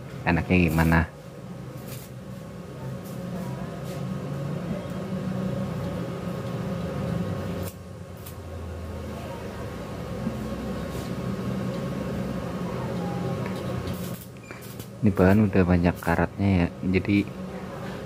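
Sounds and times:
cooling fan running: 0:00.0 - 0:18.0
welder humming: 0:00.0 - 0:18.0
electrode scratching on steel: 0:01.8 - 0:02.2.

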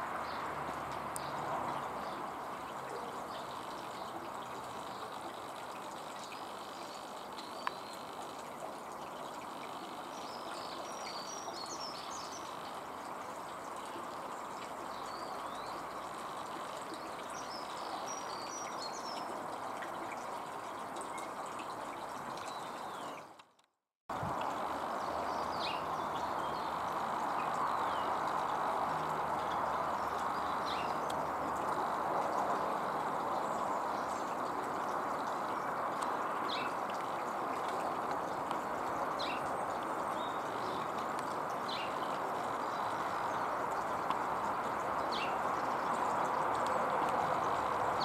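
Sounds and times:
small birds chirping: 0:02.9 - 0:08.3, 0:29.3 - 0:31.9.

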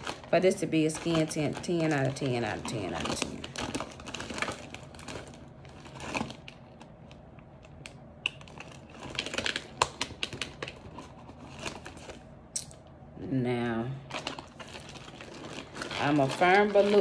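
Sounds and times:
plastic packaging crinkling: 0:00.0 - 0:12.8, 0:14.0 - 0:17.0.

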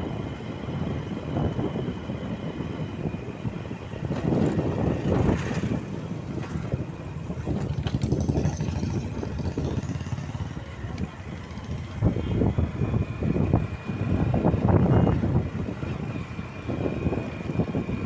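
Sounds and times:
vehicle engine and road noise: 0:00.0 - 0:18.0
wind buffeting microphone: 0:00.0 - 0:18.0
motorcycle passing: 0:04.1 - 0:16.0.

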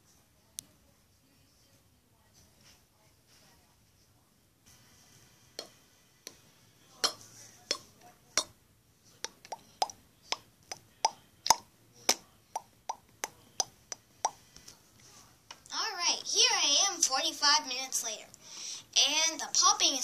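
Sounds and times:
mouth pops: 0:07.0 - 0:08.6, 0:09.2 - 0:14.5.

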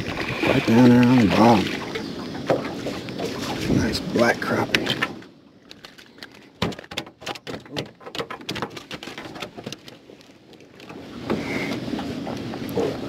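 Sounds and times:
fish flopping on boat deck: 0:00.0 - 0:13.0
water noise: 0:00.0 - 0:13.0
handling rustle: 0:04.6 - 0:13.0.

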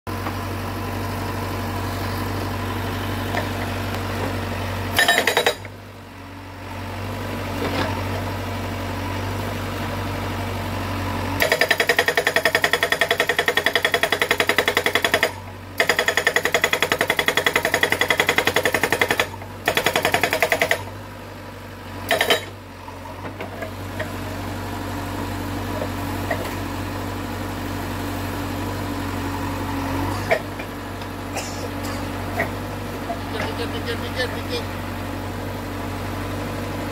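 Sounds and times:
hydraulic breaker hammering rock: 0:04.9 - 0:05.7, 0:11.4 - 0:20.9, 0:22.1 - 0:22.6.

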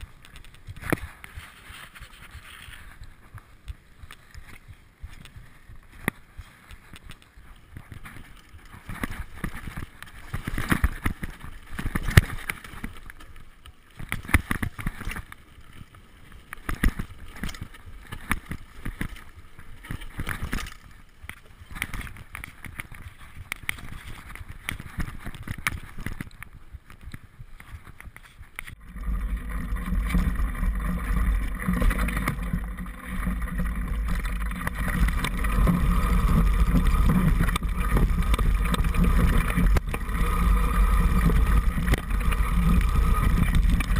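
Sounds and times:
bike frame rattling over bumps: 0:06.7 - 0:43.9
steady low rumble: 0:28.7 - 0:43.9.

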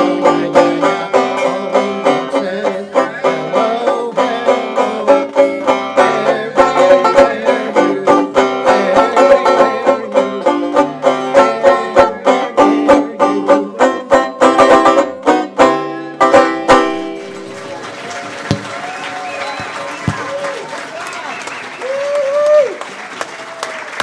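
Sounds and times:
banjo picking: 0:00.0 - 0:18.9.

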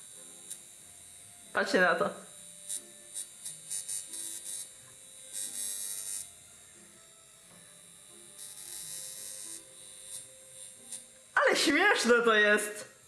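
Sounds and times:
electrode sparks crackling: 0:08.4 - 0:13.0.

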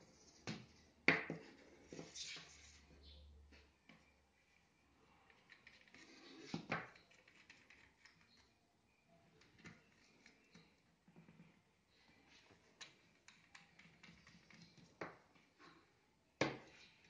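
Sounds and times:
plastic tubing clicks and rustles: 0:05.1 - 0:08.6, 0:09.3 - 0:15.8.

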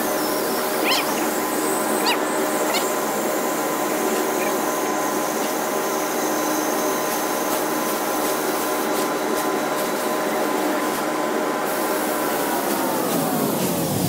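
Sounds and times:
laser cutter motors humming: 0:00.0 - 0:09.0.

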